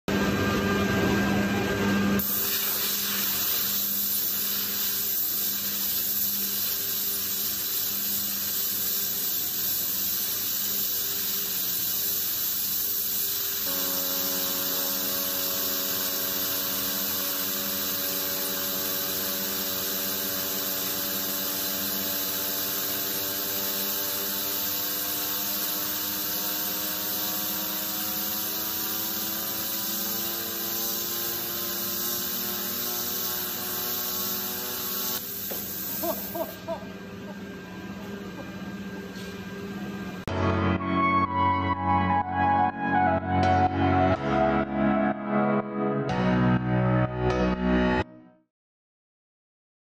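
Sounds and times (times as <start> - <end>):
compressed air hissing: 2.2 - 36.7
whine rising in pitch: 40.2 - 46.6.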